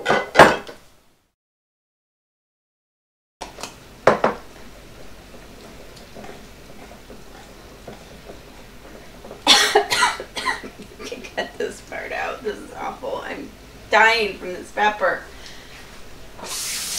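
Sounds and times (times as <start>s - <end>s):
low room noise: 3.4s - 16.9s.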